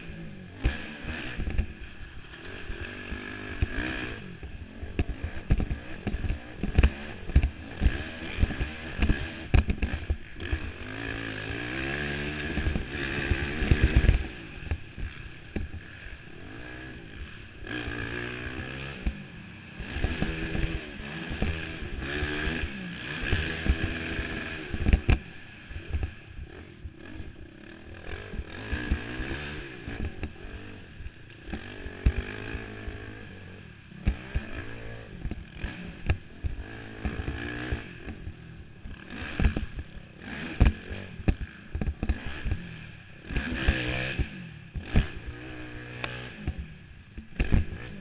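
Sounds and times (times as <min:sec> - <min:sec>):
quad engine revving: 0:00.0 - 0:48.0
sharp knocks and clatter: 0:05.0 - 0:10.1.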